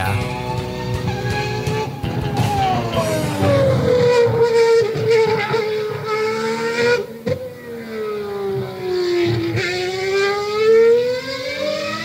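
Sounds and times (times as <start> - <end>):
outro music: 0.0 - 5.3
car engine revving: 0.0 - 12.0.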